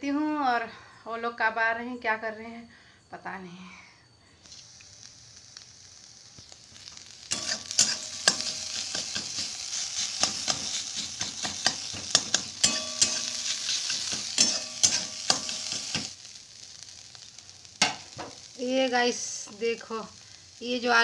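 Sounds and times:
potatoes sizzling in a pan: 4.4s - 21.0s
metal spatula scraping a pan: 6.9s - 16.1s.

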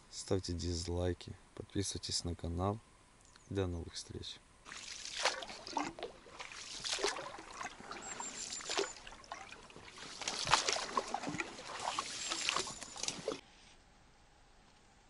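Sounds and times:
oar strokes splashing water: 4.6s - 13.4s
reeds brushing against hull: 4.7s - 13.4s
water dripping: 4.7s - 13.4s.

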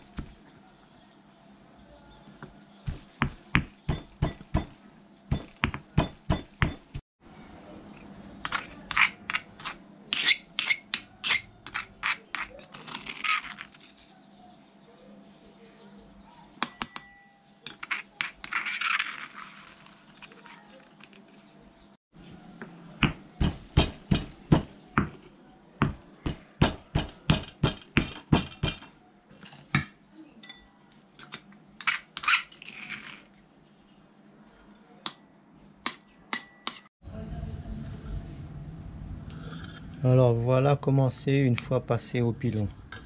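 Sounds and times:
stone pestle pounding in mortar: 2.9s - 7.0s, 23.0s - 25.2s, 25.8s - 28.9s
metal spoon clinking and scraping: 8.4s - 14.1s, 16.6s - 21.4s, 30.4s - 33.4s.

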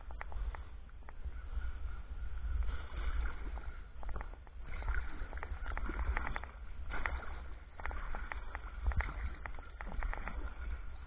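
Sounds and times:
steady low rumble: 0.0s - 11.0s
water drips: 2.6s - 11.0s
paddle splashing in water: 3.0s - 11.0s.

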